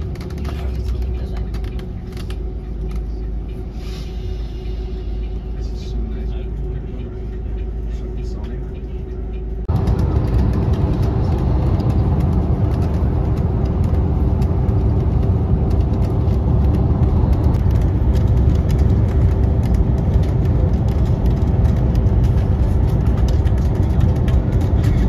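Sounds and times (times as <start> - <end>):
constant hum: 0.0 - 25.0
engine and tyre drone: 0.0 - 25.0.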